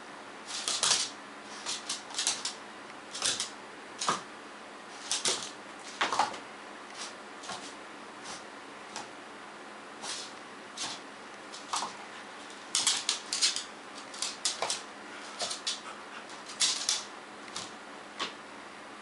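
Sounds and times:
dog claws clicking on wood floor: 0.5 - 4.2, 5.0 - 6.4, 10.8 - 18.3.

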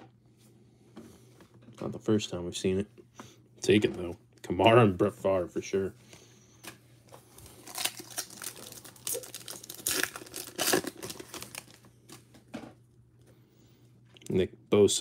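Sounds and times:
foil wrapper crinkling and ripping: 7.3 - 12.3.

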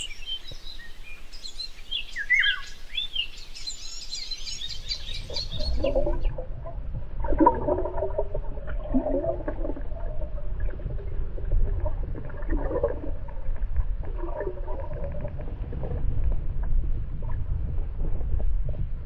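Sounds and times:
low underwater rumble: 4.5 - 19.0
gurgling: 7.2 - 13.4.

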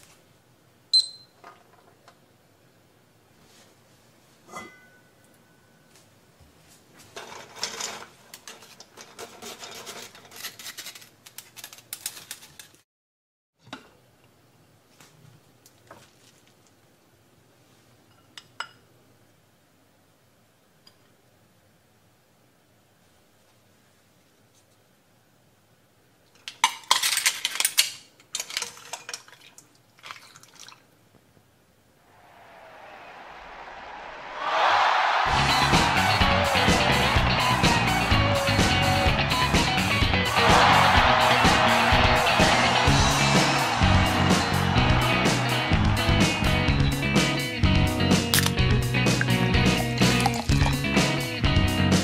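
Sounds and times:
mesh strainer scraping in pot: 9.0 - 11.0
soup dripping: 29.1 - 30.9, 48.4 - 50.8.

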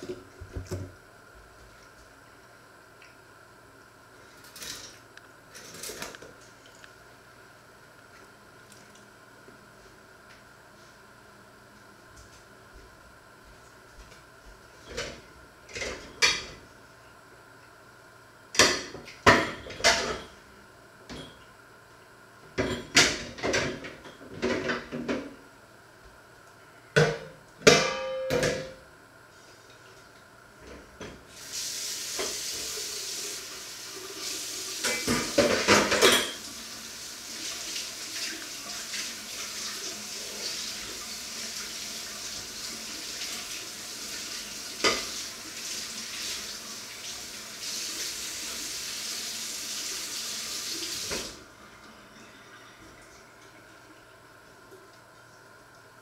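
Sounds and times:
food sizzling in frying pan: 31.3 - 35.6.

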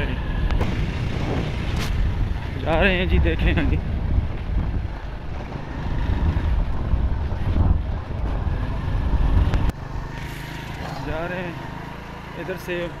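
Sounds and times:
wind buffeting microphone: 0.0 - 10.0
motorcycle engine running: 0.0 - 13.0.

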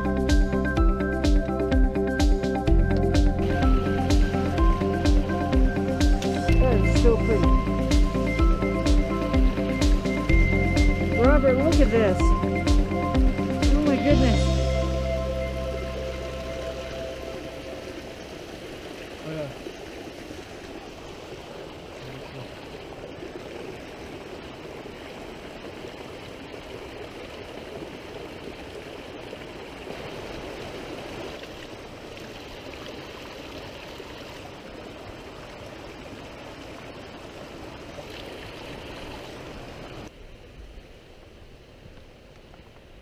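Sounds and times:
creek water rushing: 0.0 - 43.0.

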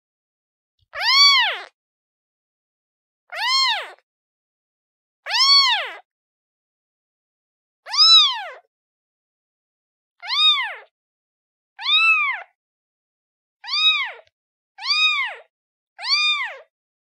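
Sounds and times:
kitten meowing: 1.0 - 1.7, 3.3 - 4.0, 5.3 - 6.0, 7.9 - 8.6, 10.2 - 10.9, 11.8 - 12.5, 13.6 - 16.7.

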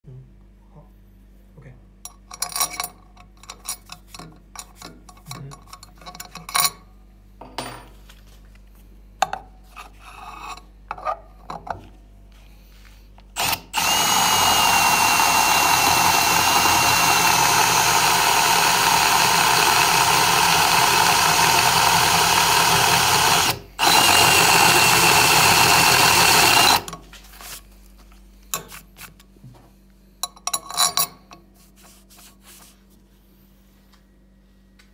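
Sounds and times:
power drill whining: 13.4 - 27.0.

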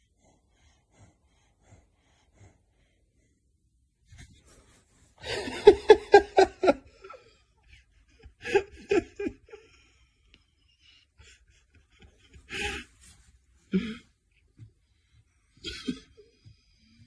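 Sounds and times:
person laughing: 5.2 - 13.0, 15.6 - 16.5.

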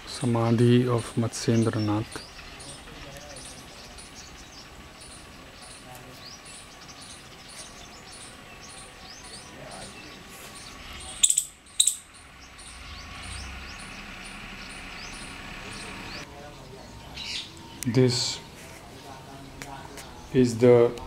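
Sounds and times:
birds chirping: 0.0 - 21.0
shrill bird calls: 1.0 - 16.2.

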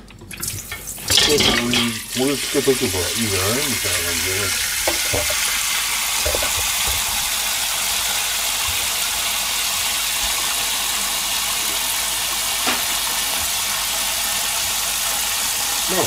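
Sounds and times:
tap running into metal bowl: 0.4 - 2.0, 4.5 - 7.4
dishes knocking: 1.1 - 1.9, 4.8 - 5.6, 6.2 - 7.3.

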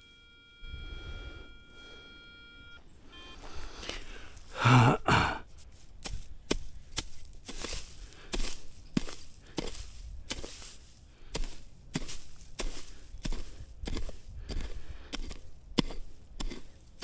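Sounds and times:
metal detector electronic tone: 0.0 - 3.7.

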